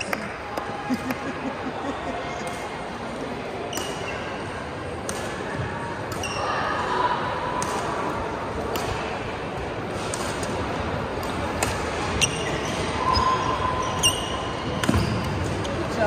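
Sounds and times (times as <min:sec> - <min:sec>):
crowd noise: 0:00.0 - 0:16.0
shoe squeak: 0:06.2 - 0:06.5, 0:12.1 - 0:16.0.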